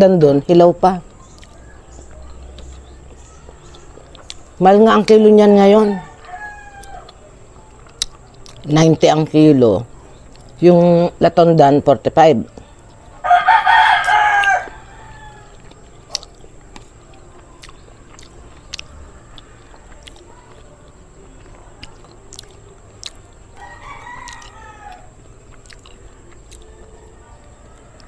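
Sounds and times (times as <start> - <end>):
rooster crowing: 5.6 - 7.2, 13.1 - 15.8, 23.5 - 25.3.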